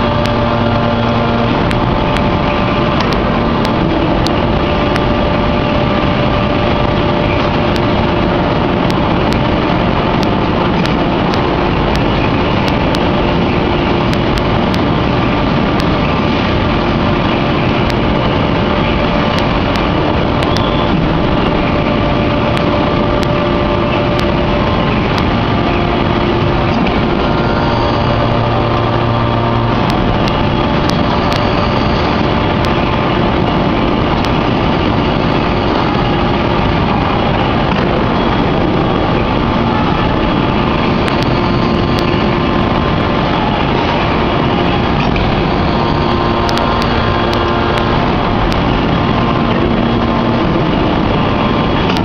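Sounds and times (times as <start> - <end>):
deeper hum: 0.0 - 52.0
forging press drone with whine: 0.0 - 52.0
sharp ticks: 1.5 - 5.2, 6.8 - 15.0, 15.6 - 16.0, 17.8 - 24.4, 25.0 - 27.3, 29.7 - 36.4, 40.0 - 49.7.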